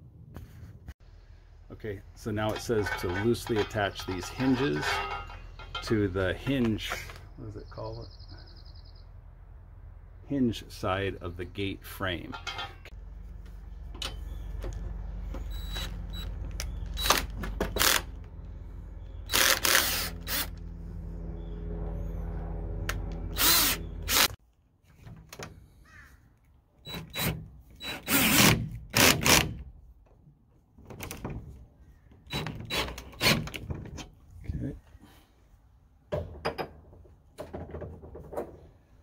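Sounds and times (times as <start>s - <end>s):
cordless drill running: 19.3s - 20.6s, 23.3s - 24.3s.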